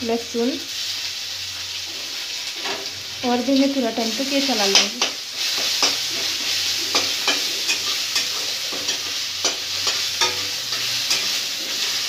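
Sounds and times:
spices sizzling in hot oil: 0:00.0 - 0:12.0
spatula scraping and knocking pan: 0:04.6 - 0:12.0.

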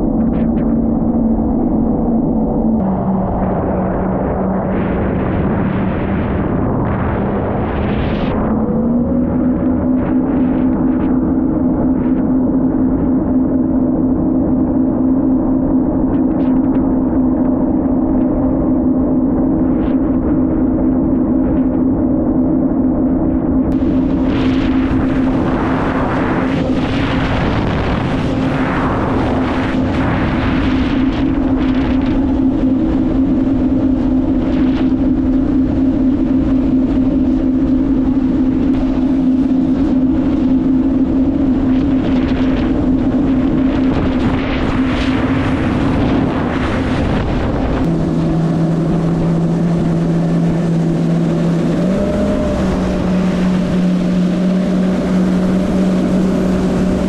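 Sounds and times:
watercraft engine running: 0:00.0 - 0:57.0
wind on microphone: 0:00.0 - 0:57.0.

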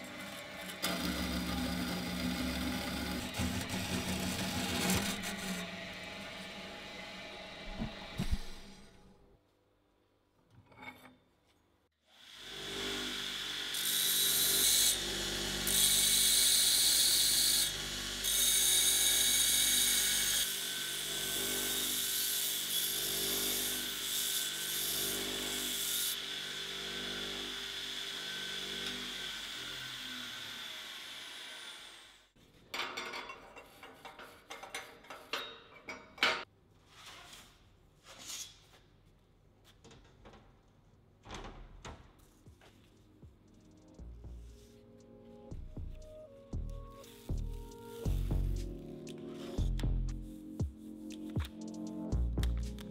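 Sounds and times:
belt grinder grinding steel: 0:00.0 - 0:08.1.

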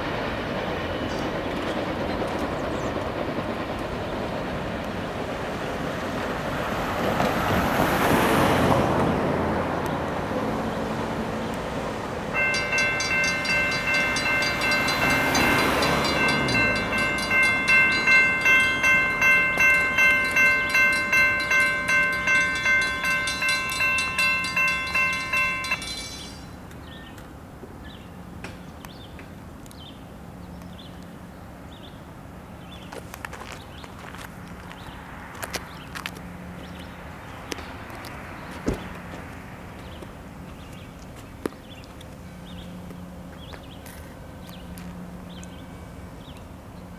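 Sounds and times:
broad rushing noise: 0:10.2 - 0:26.6
crossing warning bell ringing: 0:12.3 - 0:26.7, 0:44.2 - 0:46.9.

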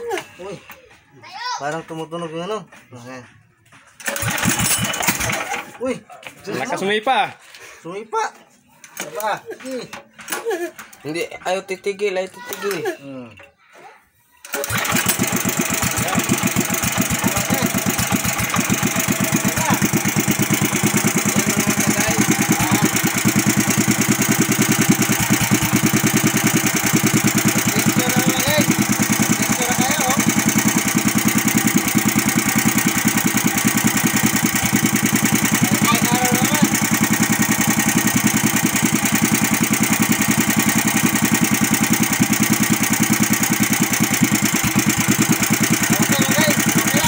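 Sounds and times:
petrol engine running steadily: 0:04.0 - 0:05.7, 0:14.5 - 0:47.0.

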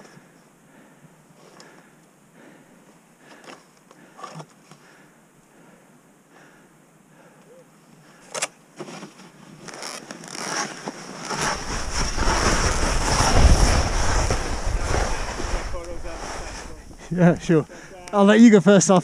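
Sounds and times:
skis scraping over snow: 0:08.8 - 0:18.2
wind rumbling on microphone: 0:11.3 - 0:18.0.

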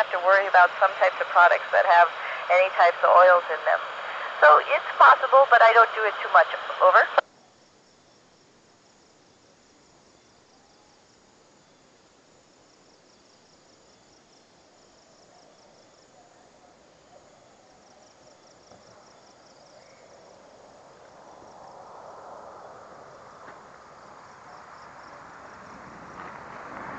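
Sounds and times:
crickets chirping: 0:06.9 - 0:26.9.

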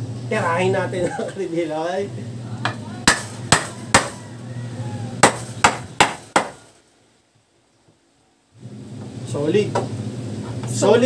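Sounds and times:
hammer pounding wooden post: 0:03.0 - 0:04.2, 0:05.2 - 0:06.6.

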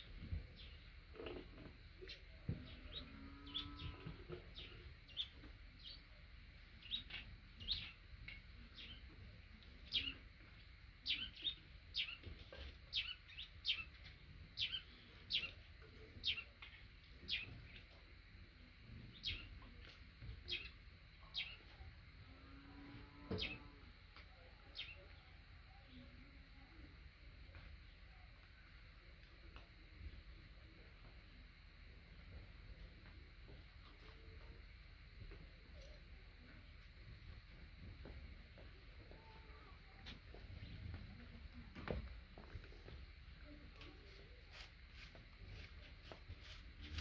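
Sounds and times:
small bird chirping: 0:00.1 - 0:06.2, 0:06.8 - 0:10.3, 0:11.0 - 0:18.0, 0:19.1 - 0:21.9, 0:24.3 - 0:26.9.

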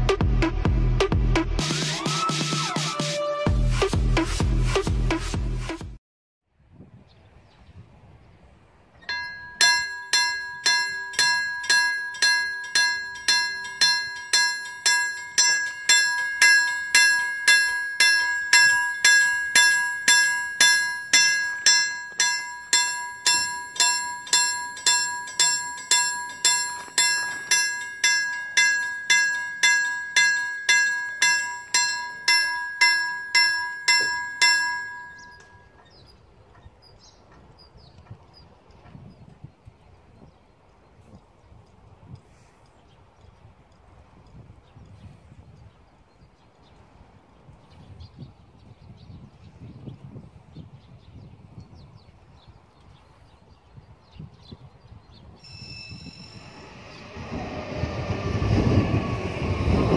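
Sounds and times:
level crossing warning bell: 0:09.0 - 0:36.0, 0:55.4 - 0:58.4.

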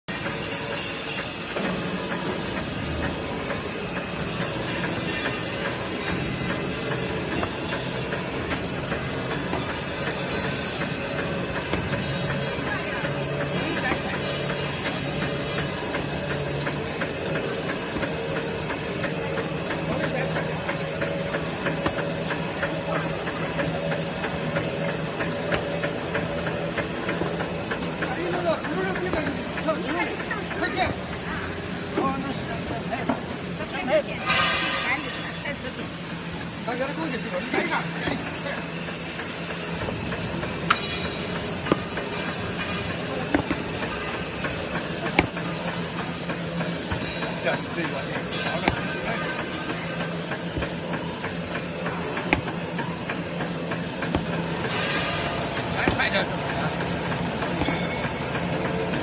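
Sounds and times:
machine hiss and rattle: 0:00.1 - 0:59.0.

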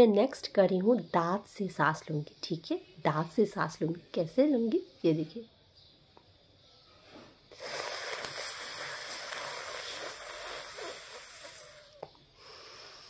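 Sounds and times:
breath hissing through teeth: 0:07.5 - 0:13.0
mouth click: 0:07.6 - 0:12.2.

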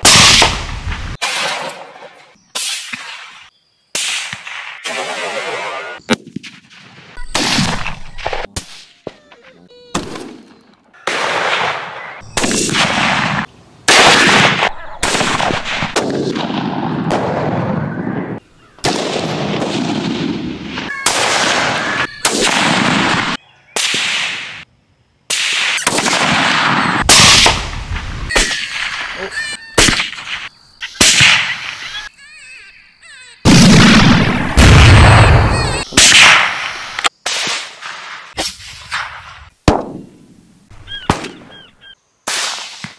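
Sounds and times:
rifle shots: 0:00.0 - 0:01.9, 0:10.0 - 0:17.8, 0:18.8 - 0:24.6, 0:25.3 - 0:31.8, 0:33.4 - 0:40.1.

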